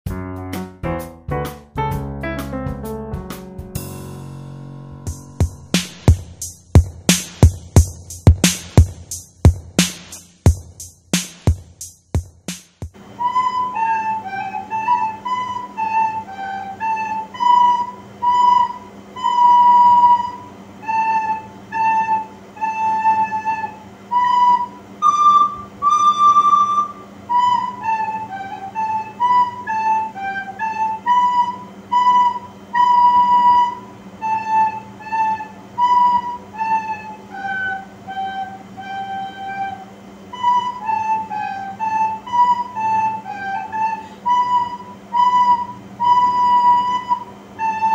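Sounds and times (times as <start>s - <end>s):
soprano recorders playing polka: 13.0s - 47.9s.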